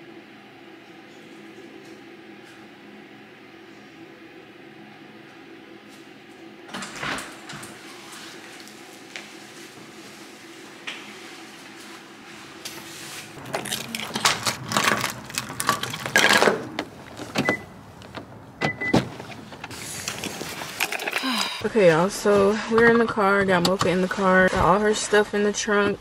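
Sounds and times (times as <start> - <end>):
steady low hum: 0.0 - 26.0
car door opening: 15.8 - 20.4.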